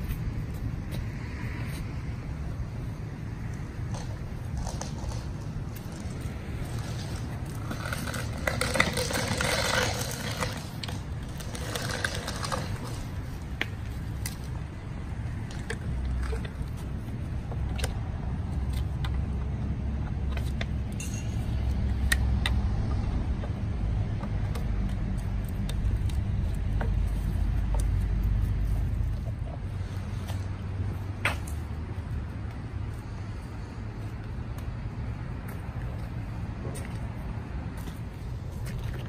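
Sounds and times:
engine running: 0.0s - 39.0s
hose scraping across asphalt: 3.8s - 17.2s, 25.2s - 31.6s.

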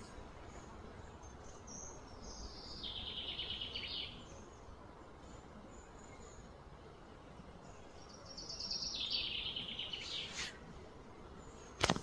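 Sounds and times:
low outdoor background hum: 0.0s - 12.0s
small bird singing trill: 0.5s - 6.5s, 7.6s - 10.6s.

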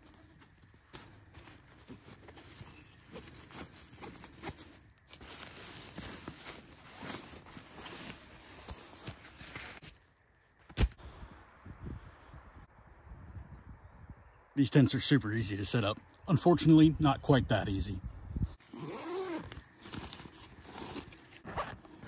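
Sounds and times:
straps and buckles rustling and clicking: 0.0s - 10.8s, 18.6s - 22.0s.

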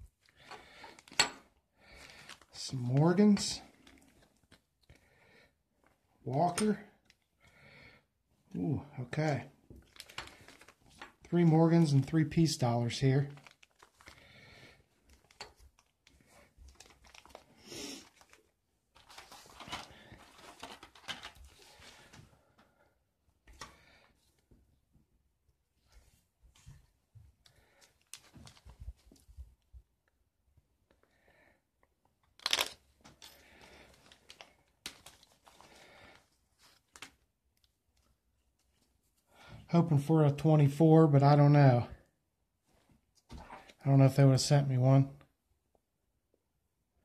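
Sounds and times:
plastic bags crinkling: 1.9s - 3.0s, 9.8s - 11.6s, 13.0s - 22.1s, 32.4s - 37.1s.

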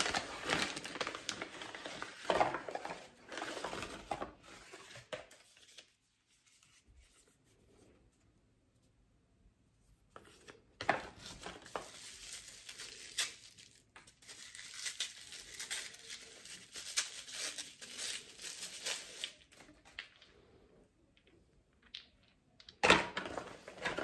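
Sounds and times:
wrapping crumpled by hand: 0.0s - 7.2s, 11.2s - 20.1s.

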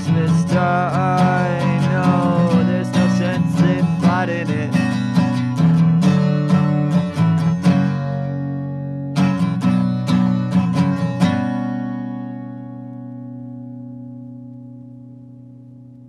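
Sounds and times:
acoustic guitar strumming chords: 0.0s - 16.0s.

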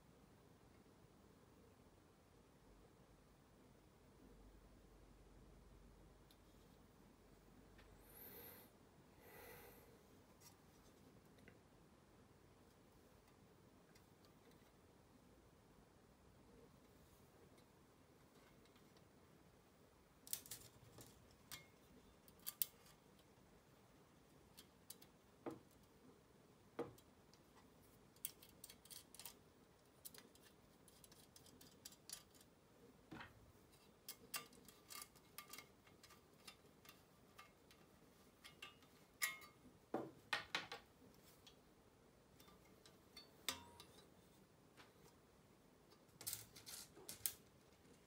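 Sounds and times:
metal parts clicking and tapping: 20.3s - 23.3s, 28.1s - 32.5s, 33.2s - 39.6s, 42.3s - 44.1s, 46.2s - 48.0s.

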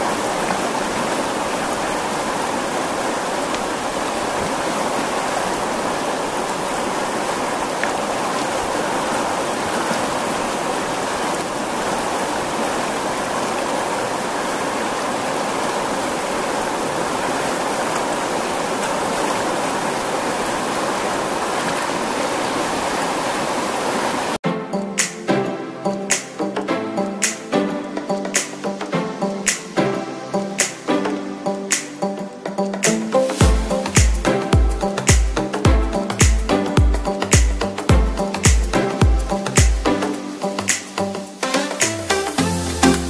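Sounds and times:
water rushing over rocks: 0.0s - 43.0s.

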